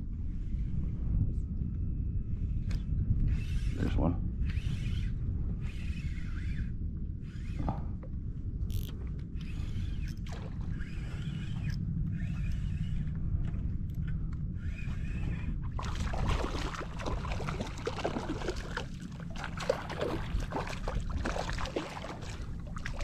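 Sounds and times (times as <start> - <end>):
low steady rumble: 0.0 - 23.0
fish splashing at the surface: 15.8 - 23.0.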